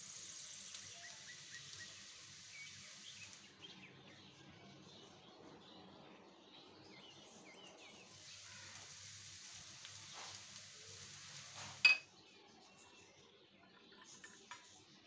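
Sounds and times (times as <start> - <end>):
faint steady hiss: 0.0 - 12.2
kitchenware clinking on frying pan: 11.8 - 12.1.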